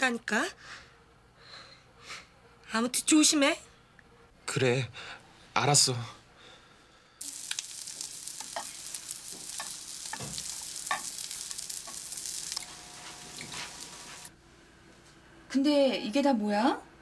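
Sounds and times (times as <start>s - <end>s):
food sizzling in a frying pan: 7.2s - 14.3s
chopsticks tapping pan: 7.4s - 14.2s.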